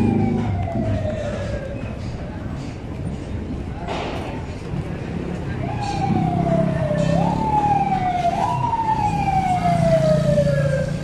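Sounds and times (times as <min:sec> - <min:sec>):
vehicle siren sweeping: 0:00.0 - 0:02.1, 0:05.5 - 0:11.0.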